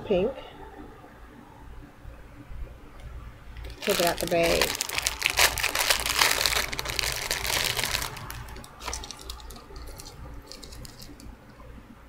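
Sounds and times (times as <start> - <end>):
plastic bag crinkling: 3.6 - 11.3.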